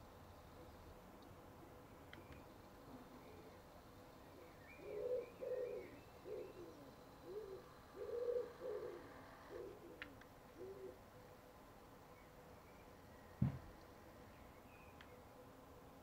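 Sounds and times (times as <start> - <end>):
pigeon cooing: 4.8 - 11.0.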